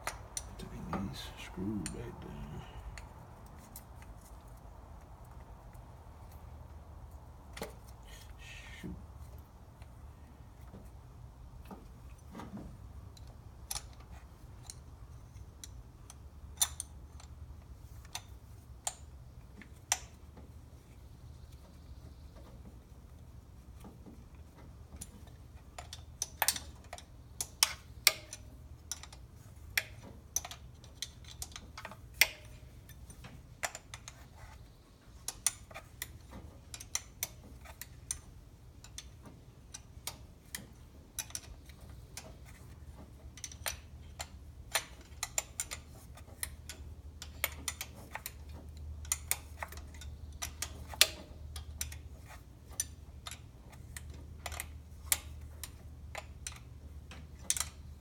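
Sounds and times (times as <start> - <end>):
low steady hum: 0.0 - 8.8.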